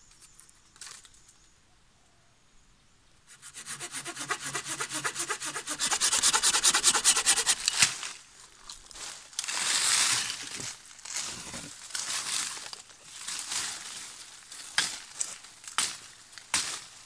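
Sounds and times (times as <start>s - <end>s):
hand saw cutting wood: 3.3s - 8.0s
leafy branch rustling and crackling: 7.3s - 17.0s.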